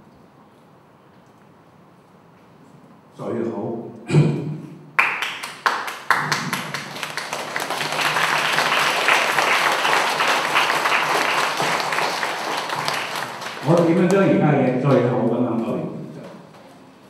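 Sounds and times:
audience applauding: 5.0 - 15.1.

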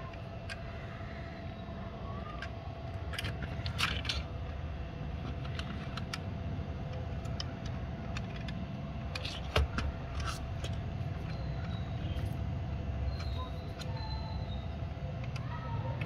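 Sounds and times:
metal toy car clicks and rattles: 2.2 - 4.4, 5.2 - 6.3, 6.9 - 12.4.

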